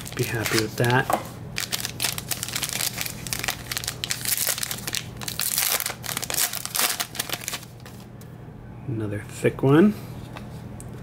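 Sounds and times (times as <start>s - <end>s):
foil wrapper crinkling: 0.0s - 8.1s.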